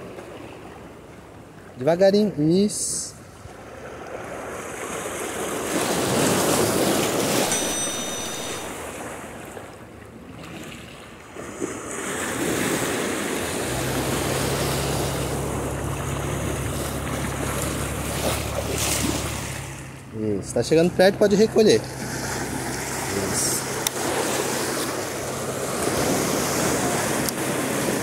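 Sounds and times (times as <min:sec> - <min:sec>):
small waves washing over rocks: 0:03.4 - 0:07.5, 0:10.3 - 0:19.9, 0:22.0 - 0:28.0.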